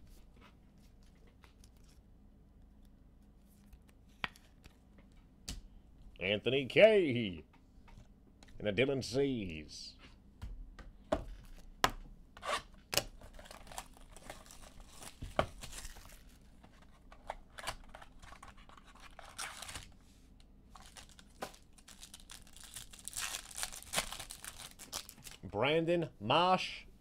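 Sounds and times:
foil wrappers tearing and crinkling: 13.2s - 16.4s, 18.1s - 19.9s, 20.8s - 25.4s.

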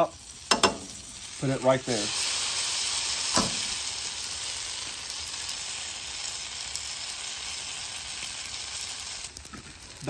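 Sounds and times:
tortillas sizzling on a griddle: 0.0s - 10.0s.

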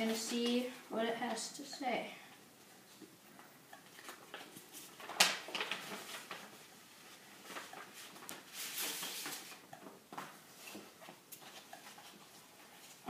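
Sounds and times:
paper rustling and crinkling: 3.8s - 13.0s.

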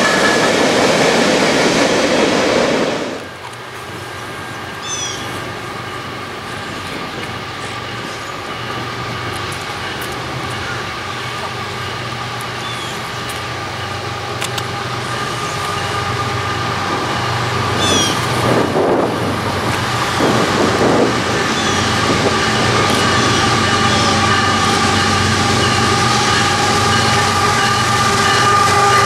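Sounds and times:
freight train locomotive rumble: 0.0s - 29.0s.

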